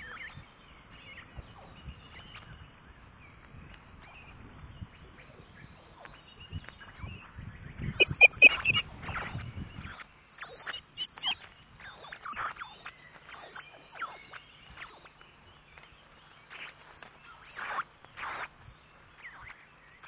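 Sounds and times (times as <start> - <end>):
wind rumbling on microphone: 0.0 - 10.0
bird high chirps: 0.0 - 20.0.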